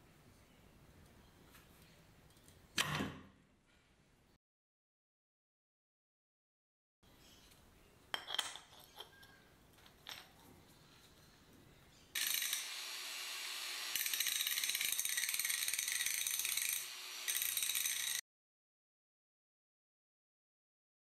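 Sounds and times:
angle grinder grinding metal: 12.2 - 18.2
clicks fitting grinder disc: 12.2 - 18.2.

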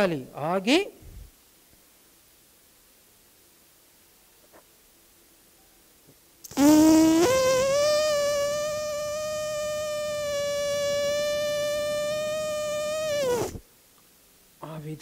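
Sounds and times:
man humming: 6.6 - 13.6.

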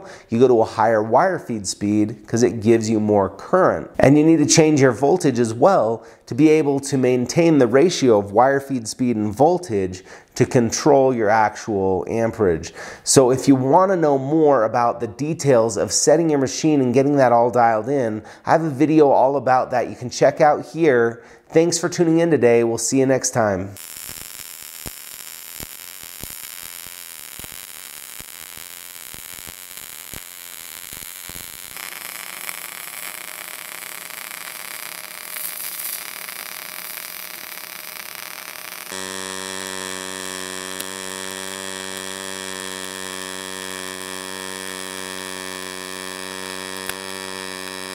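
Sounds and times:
welding arc crackling and hissing: 23.8 - 47.9.

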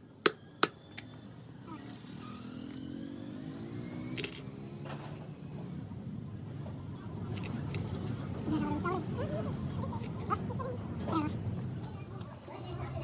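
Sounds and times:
vehicle engine rising in pitch: 0.4 - 4.8
metallic clink of steel parts: 4.2 - 4.4.

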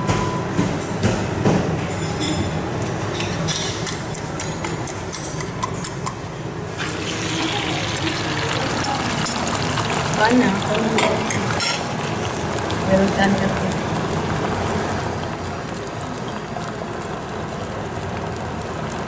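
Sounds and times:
eggs frying: 6.8 - 19.0.

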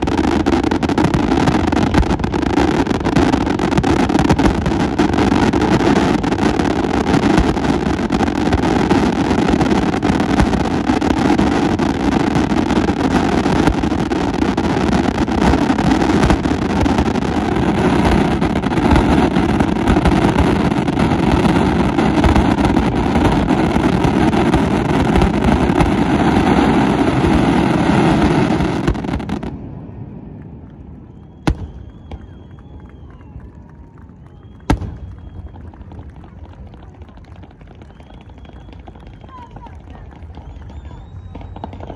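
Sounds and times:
firework bang: 0.0 - 29.7
faint firework whistles: 0.0 - 41.9
fireworks bursts and crackling: 0.0 - 41.9.

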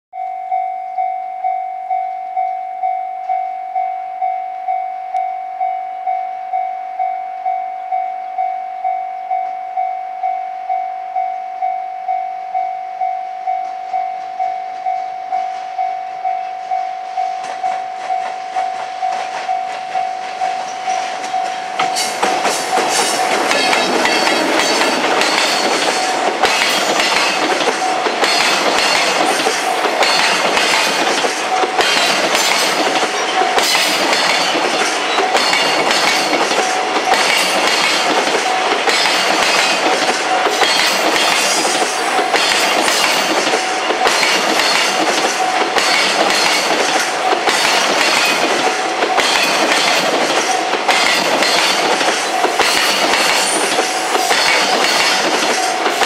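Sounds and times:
level crossing warning bell: 0.2 - 56.0
train rumbling: 13.3 - 56.0
train wheels clattering over rail joints: 17.4 - 56.0.

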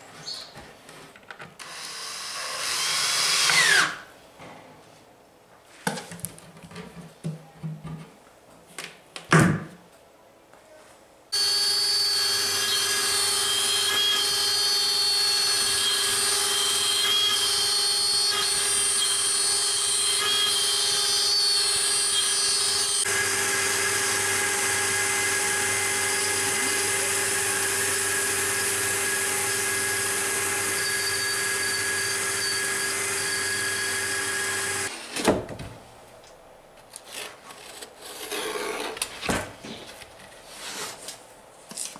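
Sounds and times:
router spindle motor whine: 11.4 - 35.0.

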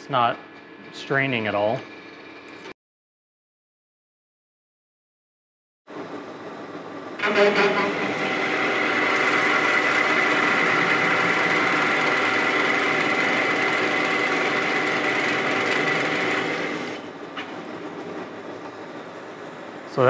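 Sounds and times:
lathe cutting with high whine: 7.2 - 17.1.

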